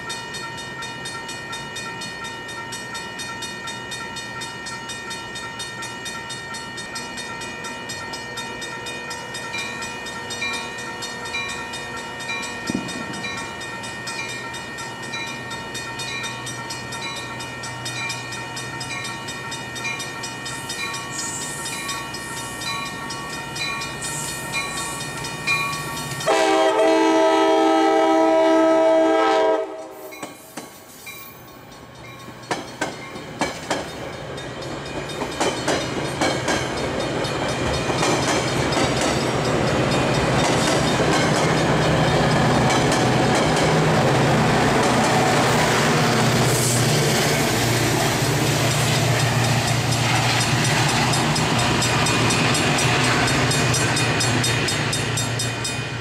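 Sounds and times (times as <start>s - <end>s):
train cars rumbling past: 0.0s - 56.0s
train humming while standing: 0.0s - 56.0s
train wheels clicking over rail joints: 12.2s - 26.4s, 29.8s - 56.0s
train horn blast: 26.2s - 30.1s.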